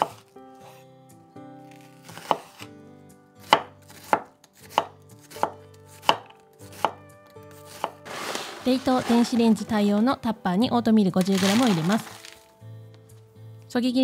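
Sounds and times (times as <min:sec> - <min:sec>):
knife chopping on wooden board: 0:00.0 - 0:00.8, 0:01.8 - 0:02.7, 0:03.4 - 0:08.4.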